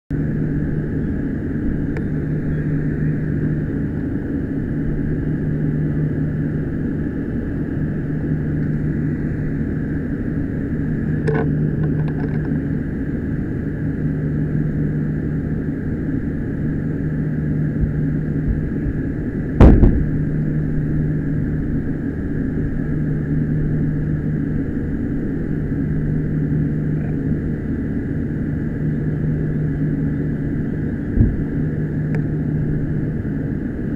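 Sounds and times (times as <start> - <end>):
engine droning: 0.1 - 33.9
loud knock: 19.6 - 20.0.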